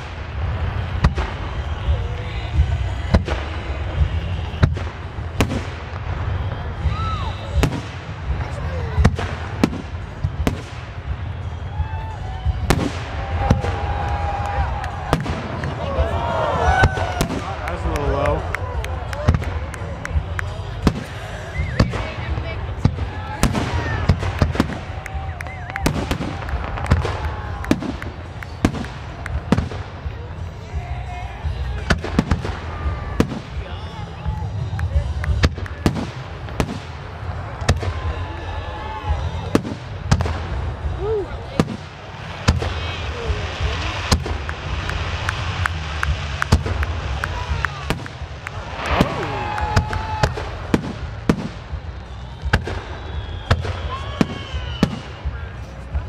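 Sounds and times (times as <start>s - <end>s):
steady low rumble: 0.0s - 53.4s
fireworks bursting: 0.0s - 56.0s
firework shells bursting: 41.6s - 55.3s.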